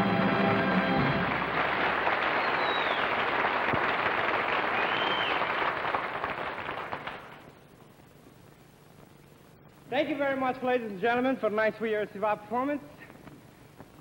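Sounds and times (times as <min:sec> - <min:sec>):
audience applauding: 0:00.2 - 0:07.5
high whistles: 0:02.3 - 0:03.2, 0:04.7 - 0:05.5.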